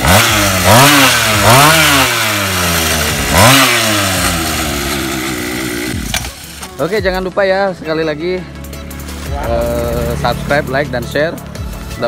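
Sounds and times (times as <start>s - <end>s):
small petrol engine revving: 0.0s - 6.7s
small petrol engine idling: 0.0s - 7.4s.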